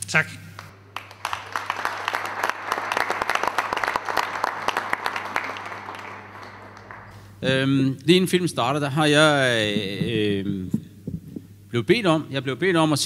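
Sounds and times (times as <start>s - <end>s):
audience applauding: 0.6s - 7.4s.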